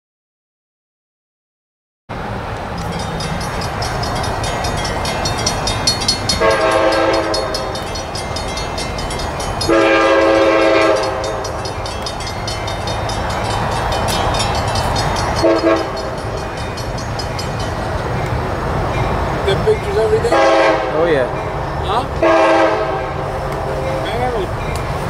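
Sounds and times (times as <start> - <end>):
train rumbling: 2.1 - 25.0
train air horn blasts: 6.4 - 7.9, 9.7 - 11.5, 15.4 - 16.1, 20.3 - 21.0, 22.2 - 24.0.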